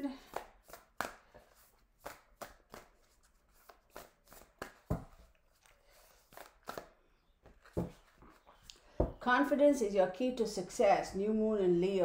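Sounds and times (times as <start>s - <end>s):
cards being shuffled: 0.2s - 8.7s.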